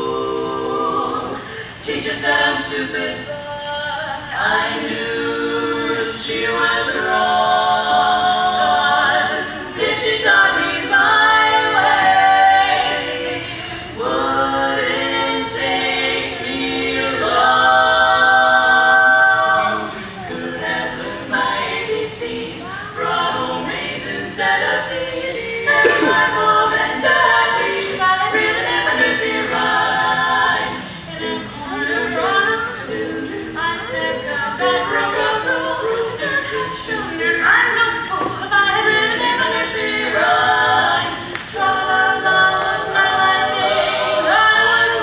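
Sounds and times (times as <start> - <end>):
women singing a cappella harmony: 0.0 - 45.0.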